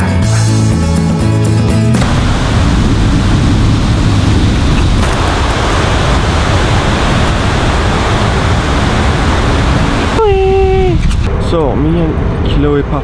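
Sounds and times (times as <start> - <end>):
loud wind noise: 2.0 - 13.0.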